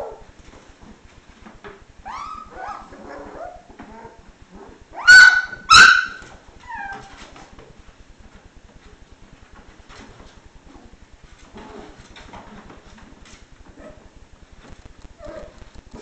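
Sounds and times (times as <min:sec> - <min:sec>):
puppies whimpering and yipping: 0:02.0 - 0:04.2, 0:04.9 - 0:07.2
puppy sharp yaps: 0:05.0 - 0:06.9.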